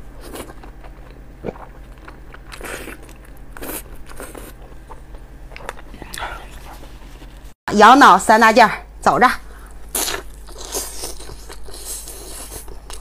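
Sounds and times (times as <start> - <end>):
wet chewing: 0.2 - 7.3.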